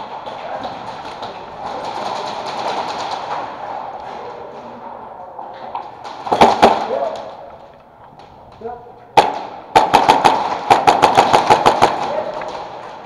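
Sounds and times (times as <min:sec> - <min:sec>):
airsoft gun shots: 0:09.2 - 0:12.7.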